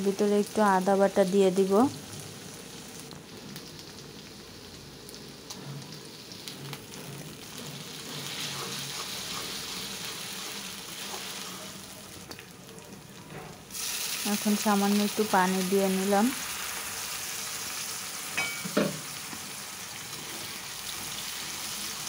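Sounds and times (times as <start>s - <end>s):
onions sizzling in hot oil: 0.0s - 22.0s
metal spatula scraping a pan: 7.6s - 11.6s.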